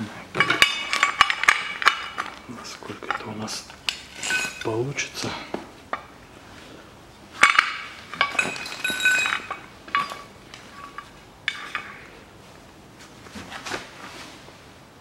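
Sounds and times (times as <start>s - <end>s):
metal clinks and clanks: 0.3s - 4.8s, 7.4s - 12.1s.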